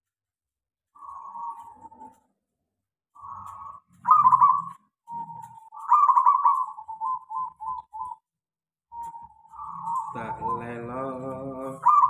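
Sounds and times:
dove cooing: 1.0s - 2.3s, 3.2s - 8.3s, 8.9s - 12.0s.

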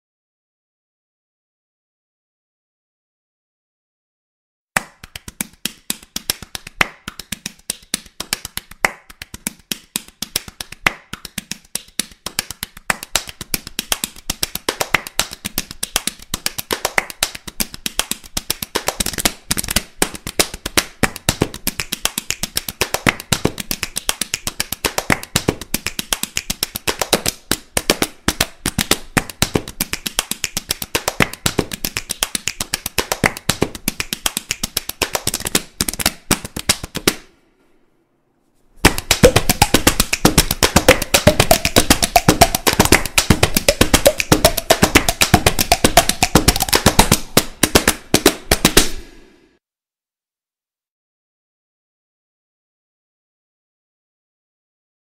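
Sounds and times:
hands slapping a belly: 4.8s - 37.3s, 38.8s - 49.3s.

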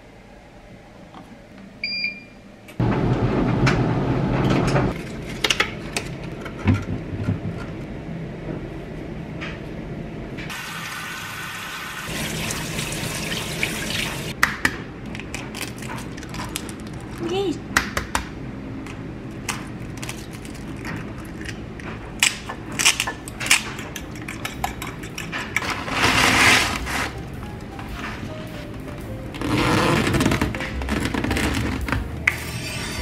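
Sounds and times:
dryer electronic beep: 1.8s - 2.5s.

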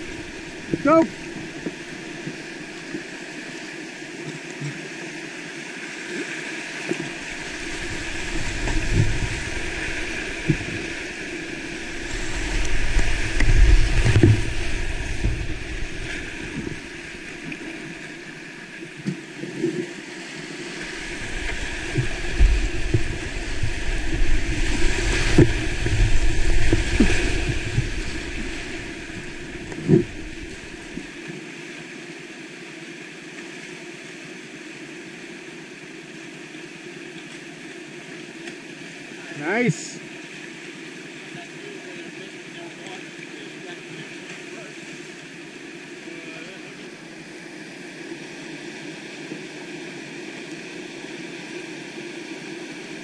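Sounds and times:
paddle strokes: 0.0s - 31.5s
whitewater rushing: 0.0s - 53.0s.

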